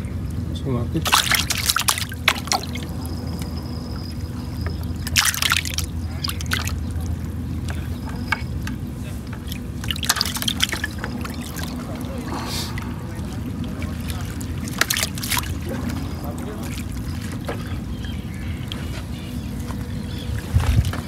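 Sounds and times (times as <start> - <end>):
water splashing in a bucket: 0.0 - 8.6, 9.3 - 21.0
low background rumble: 0.0 - 21.0.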